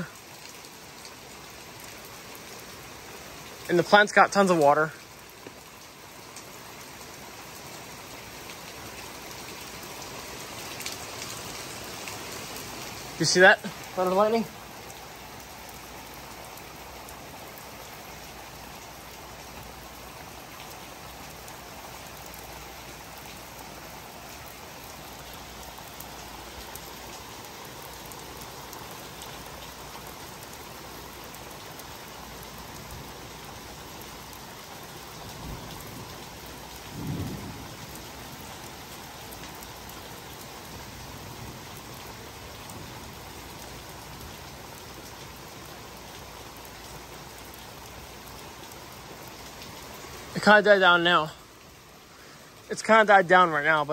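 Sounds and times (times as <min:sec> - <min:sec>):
pouring rain: 0:00.0 - 0:53.9
low rumbles of thunder: 0:35.3 - 0:36.2, 0:36.8 - 0:38.4.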